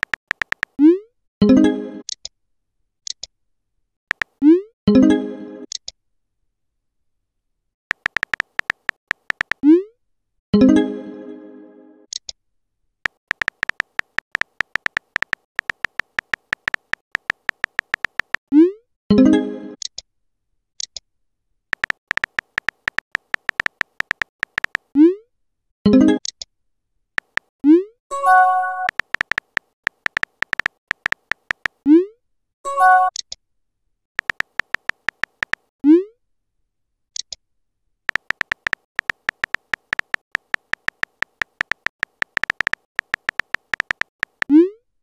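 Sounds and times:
phone keyboard tap clicks: 0.0 - 0.8, 4.1 - 4.4, 7.9 - 9.6, 13.1 - 18.4, 21.8 - 24.9, 27.2 - 27.5, 28.8 - 31.8, 34.2 - 35.7, 38.1 - 44.5.

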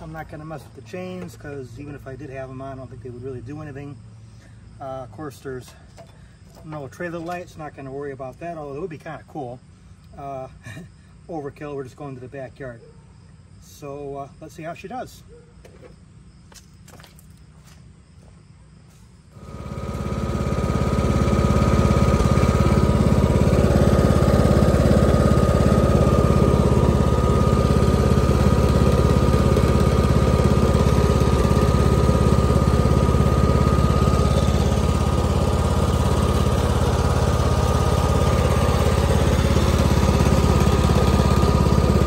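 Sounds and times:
lawn tractor engine running: 0.0 - 3.1, 4.9 - 9.0, 19.3 - 42.0.

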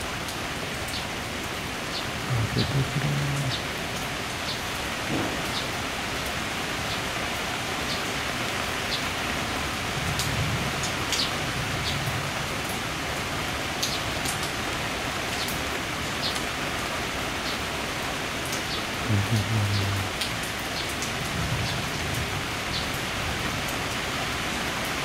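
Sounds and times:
rain falling: 0.0 - 25.0.

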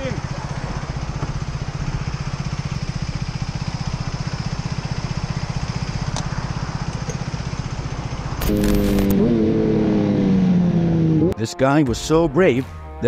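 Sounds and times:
motorcycle engine idling: 0.0 - 10.1.

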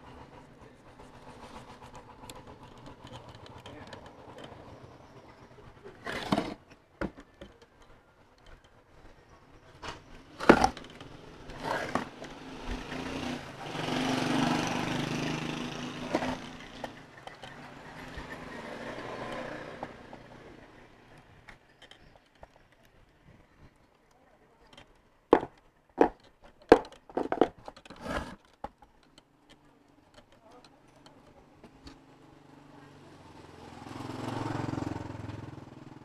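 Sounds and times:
passing street traffic: 0.0 - 23.2, 30.8 - 36.0.

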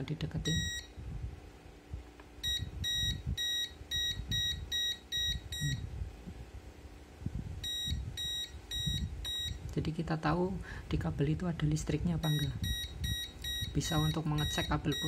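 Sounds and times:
short high beeps: 2.4 - 5.8, 7.6 - 9.6.

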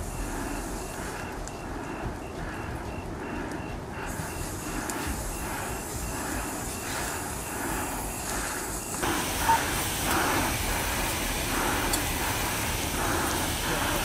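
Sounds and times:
wildfire rushing rumble: 0.0 - 14.0
fire hose spraying water: 8.7 - 14.0.

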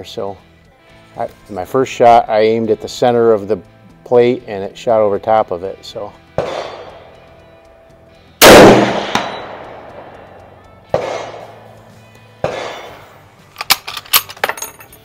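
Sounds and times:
loud rifle shot: 6.4 - 7.1, 8.4 - 11.8, 12.4 - 13.1
distant gunshots: 6.4 - 7.2, 8.4 - 11.7, 12.4 - 13.1
bullet clanging on steel plate: 8.4 - 10.4, 13.6 - 15.0
rifle bolt clicking: 13.6 - 14.4.

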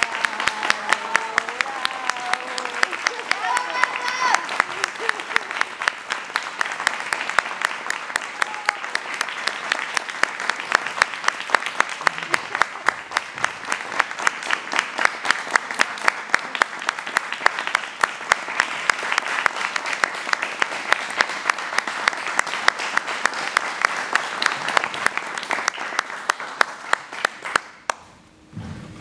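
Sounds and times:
audience applauding: 0.0 - 28.1.

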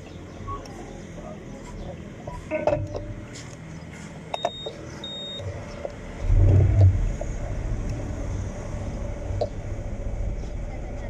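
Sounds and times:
short electronic beeps: 4.4 - 5.5.

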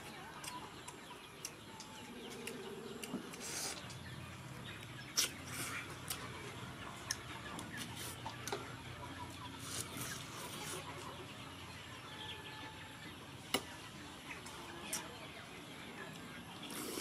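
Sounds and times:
chewing and crunching: 0.0 - 11.2
birds: 0.0 - 17.0.

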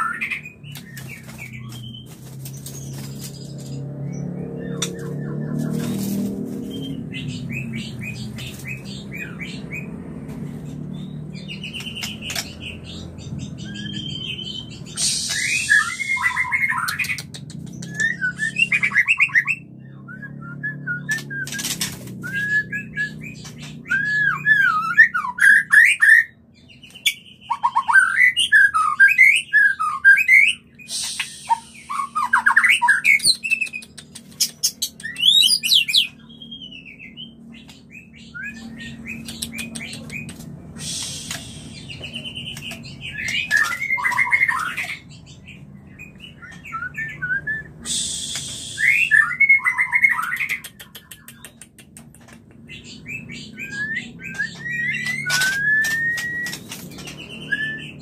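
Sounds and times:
bird whistled calls: 13.6 - 26.4, 27.0 - 33.9, 34.6 - 37.4, 38.0 - 45.2, 46.0 - 51.5, 52.8 - 58.0.

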